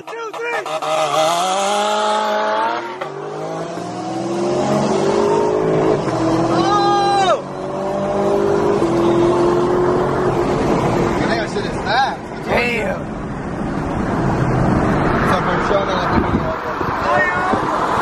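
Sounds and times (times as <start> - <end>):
car engine accelerating hard: 0.6 - 11.8.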